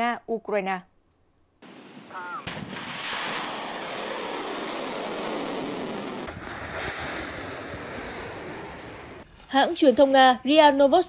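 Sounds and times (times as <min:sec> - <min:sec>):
missile launch roar: 0:01.7 - 0:09.2.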